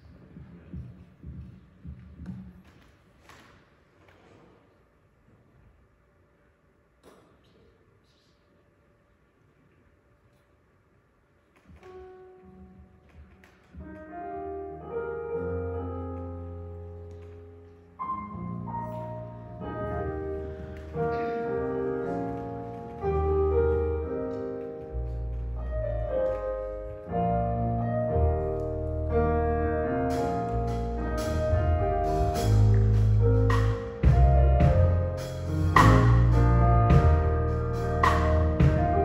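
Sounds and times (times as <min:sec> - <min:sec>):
keyboard chords: 0:13.8 - 0:39.0.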